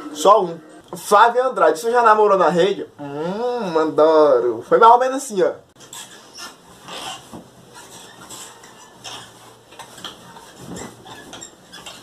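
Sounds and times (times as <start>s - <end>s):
fabric rustling: 5.8s - 12.0s.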